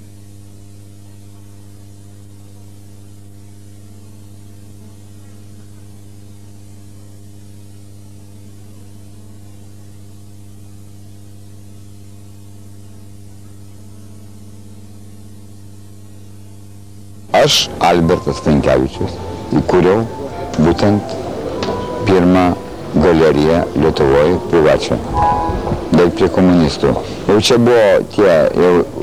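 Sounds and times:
electrical mains hum: 0.0s - 29.0s
constant hiss: 17.2s - 29.0s.

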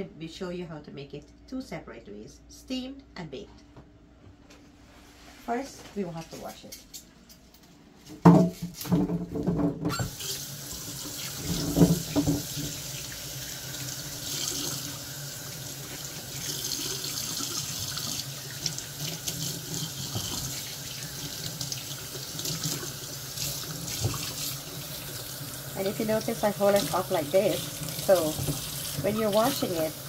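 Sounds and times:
knocks in sink: 8.2s - 10.0s, 11.4s - 12.8s
faucet running into metal sink: 10.0s - 30.0s.

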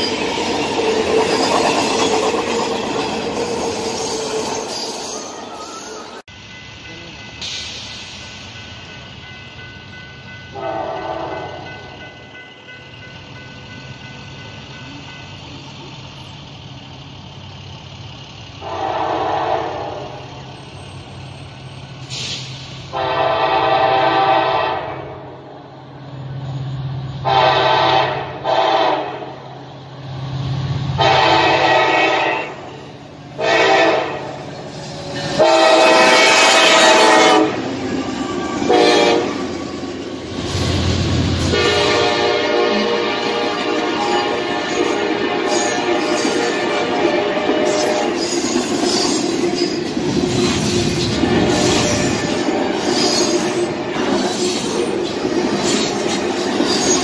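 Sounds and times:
locomotive engine rumble: 0.0s - 28.6s, 29.2s - 57.0s
locomotive air horn blasts: 10.5s - 11.6s, 18.6s - 20.2s, 22.9s - 25.2s, 27.2s - 29.4s, 31.0s - 34.3s, 35.4s - 37.7s, 38.6s - 39.4s, 41.4s - 48.2s.

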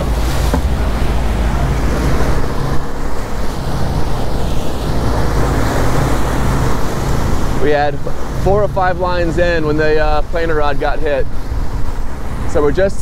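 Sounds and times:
churning wake water: 0.0s - 13.0s
outboard motors droning: 0.0s - 13.0s
wind buffeting microphone: 0.0s - 13.0s.

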